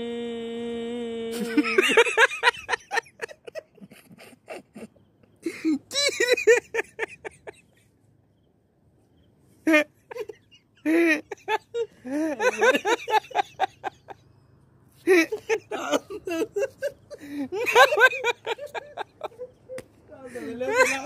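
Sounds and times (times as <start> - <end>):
bursts of laughter: 15.1 - 19.7.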